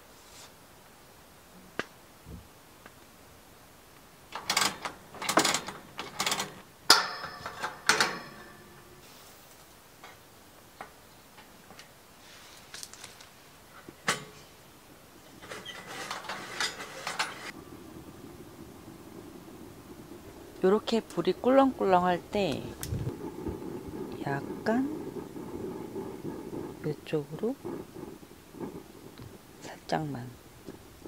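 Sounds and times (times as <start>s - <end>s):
metal hatch clicks and clattering: 4.3s - 8.7s
rustling: 11.4s - 14.6s, 15.2s - 31.0s.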